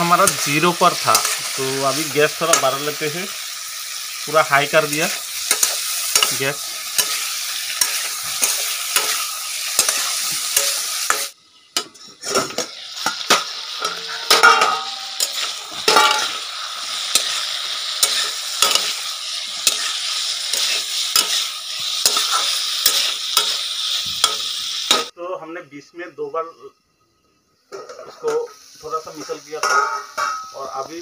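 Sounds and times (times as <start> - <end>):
food sizzling in a pan: 0.0 - 25.2, 26.9 - 31.0
spatula scraping and knocking pan: 5.4 - 16.4, 29.2 - 30.6.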